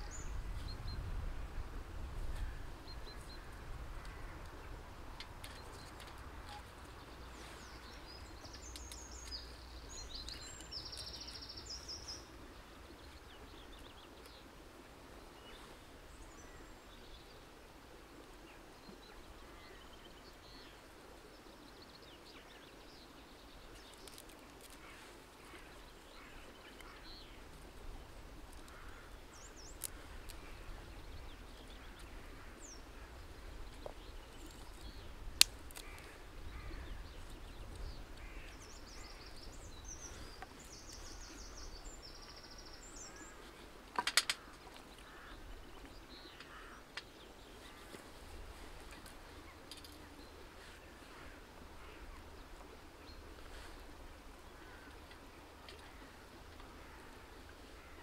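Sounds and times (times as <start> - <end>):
low wind rumble: 0.0 - 18.2, 25.9 - 44.5
dry twigs snapping: 23.8 - 24.9, 29.6 - 30.4, 33.8 - 36.1, 43.9 - 44.6.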